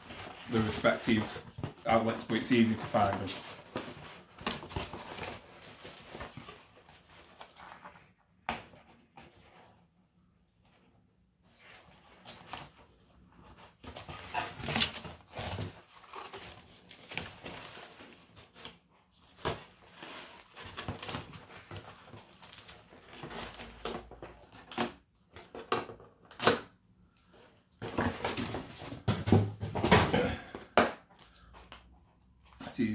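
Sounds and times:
cardboard rustling and tearing: 0.0s - 9.7s, 11.6s - 26.7s.

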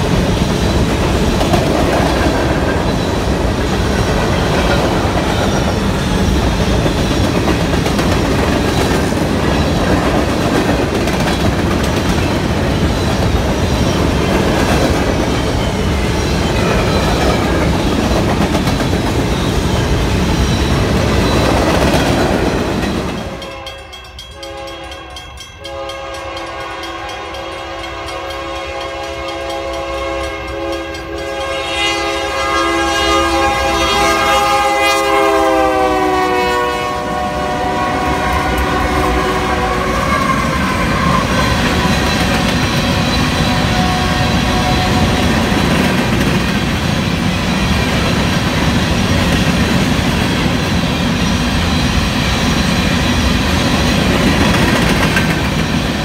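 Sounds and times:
train wheels rumbling and clacking: 0.0s - 32.4s, 37.0s - 56.0s
locomotive air horn blasts: 23.4s - 42.0s, 42.9s - 45.4s.

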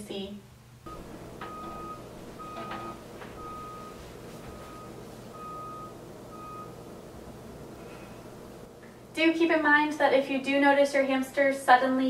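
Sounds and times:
vehicle reversing alarm beeping: 0.9s - 7.2s.

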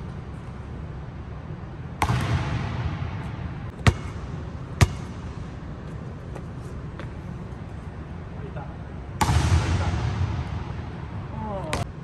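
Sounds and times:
basketball bouncing on hardwood: 3.8s - 5.2s.

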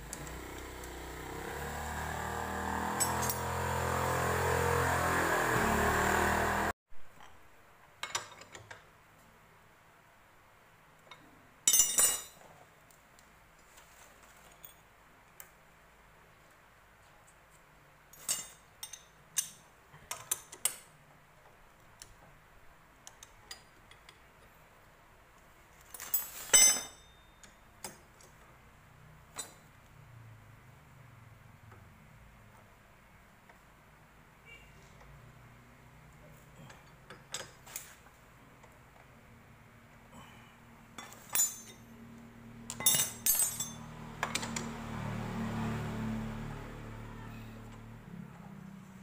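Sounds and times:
metal tools clinking: 3.0s - 3.6s, 11.7s - 12.4s, 25.9s - 27.6s, 41.0s - 41.9s, 42.7s - 44.6s.

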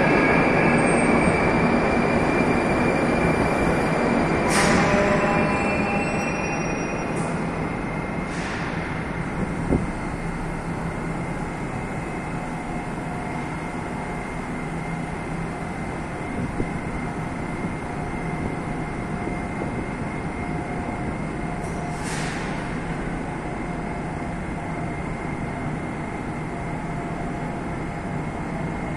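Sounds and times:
metro train rumbling: 0.0s - 28.9s.

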